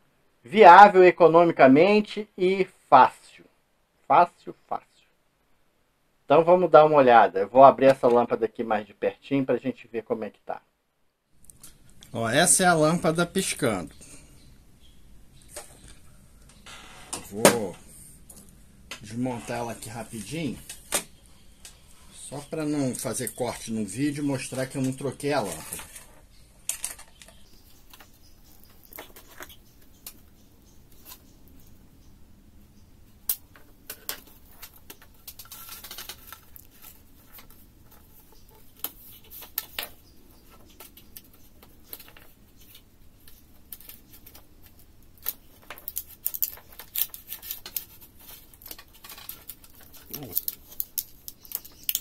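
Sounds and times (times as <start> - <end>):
plastic clicks and rattles: 25.7 - 30.2.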